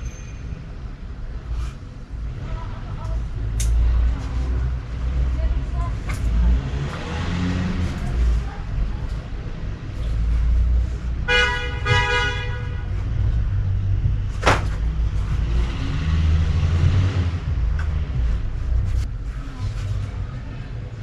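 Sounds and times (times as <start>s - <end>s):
traffic rumbling: 0.0s - 21.0s
vehicle horn honks: 11.3s - 12.9s.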